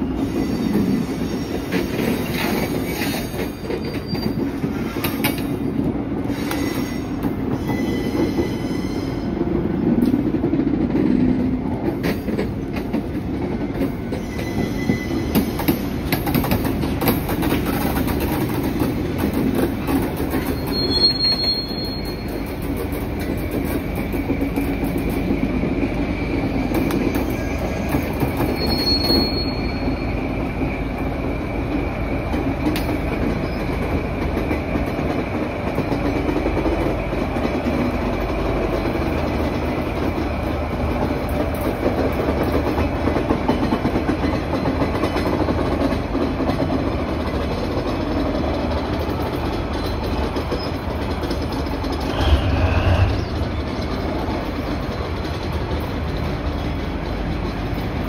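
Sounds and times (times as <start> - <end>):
high wheel squeals: 0.0 - 5.2, 6.3 - 9.4, 14.1 - 15.6, 20.4 - 22.5, 27.3 - 30.4
train wheels clicking on rails: 0.0 - 58.0.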